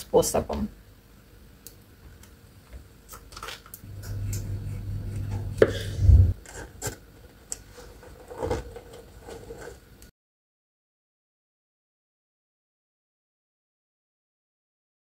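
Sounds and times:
low hum: 3.8 - 6.4
pulp scraping through sieve: 7.8 - 9.9.

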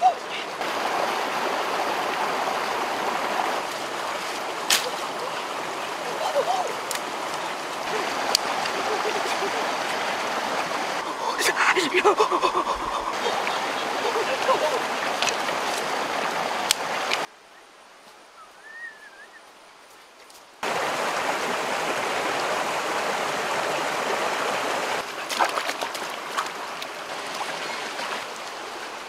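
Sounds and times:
stream rushing over rocks: 0.0 - 19.0, 20.6 - 29.0
water splashes and knocks: 0.6 - 6.1, 6.7 - 11.0, 13.2 - 17.3, 25.0 - 28.5.

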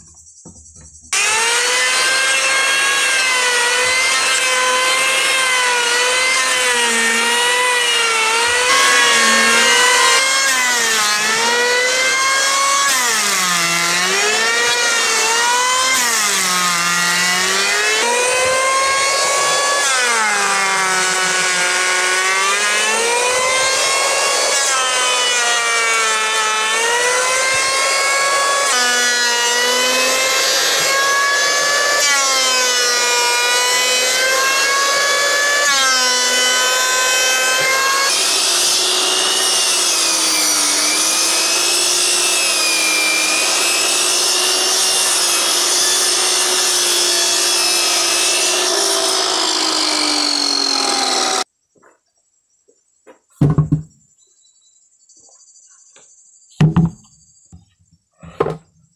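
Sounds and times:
electric planer shaving wood: 1.2 - 51.5.

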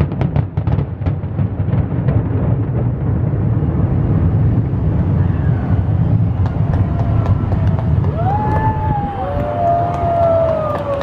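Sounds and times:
distant city rumble: 0.0 - 11.0
emergency siren wailing: 5.0 - 11.0.

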